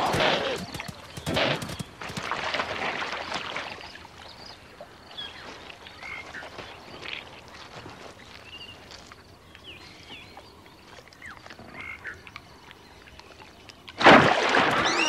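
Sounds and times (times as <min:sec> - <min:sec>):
splashing through wet mud: 0:00.0 - 0:04.6, 0:10.9 - 0:15.0.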